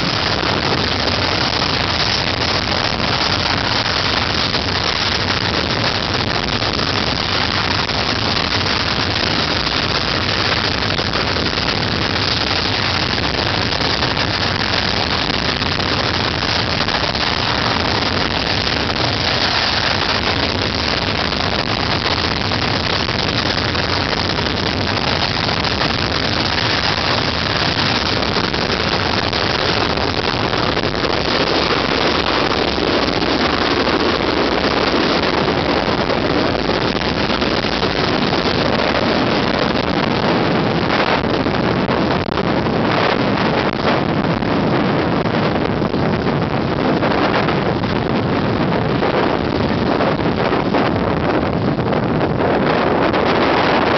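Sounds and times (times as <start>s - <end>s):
jet engines running: 0.0s - 41.1s.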